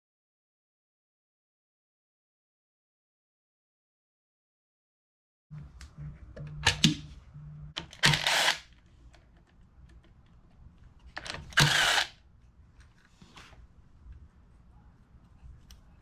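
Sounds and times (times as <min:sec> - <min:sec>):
cordless power driver bursts: 0:08.0 - 0:08.6, 0:11.4 - 0:12.1.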